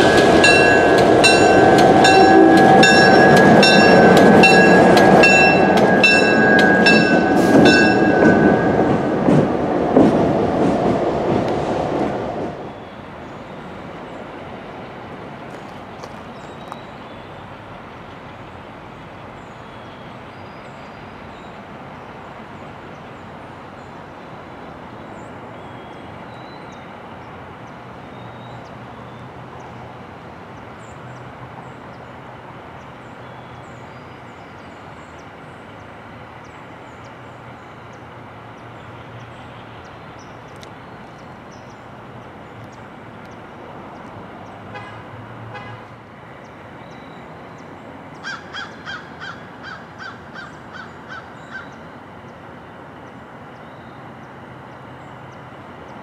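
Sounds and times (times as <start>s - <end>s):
diesel locomotive rumbling: 0.0s - 20.4s
crow cawing: 48.2s - 51.8s.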